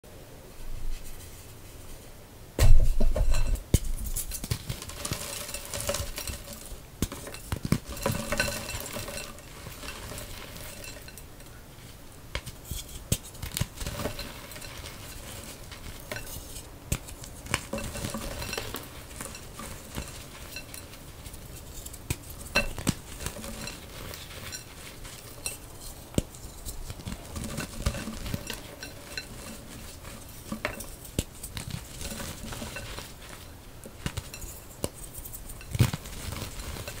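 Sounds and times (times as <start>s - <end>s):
chalk crunching and crumbling: 0.6s - 37.0s.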